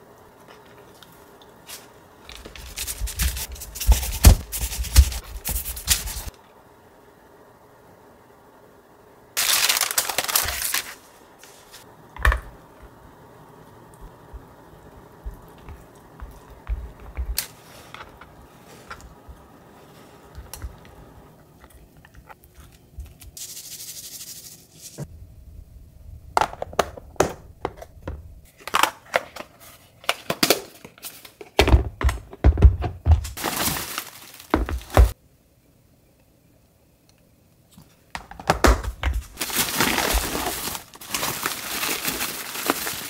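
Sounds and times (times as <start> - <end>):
paper bag rustling: 9.4 - 11.9, 33.2 - 35.2, 39.2 - 43.0
seed shaker rattle: 23.4 - 25.0.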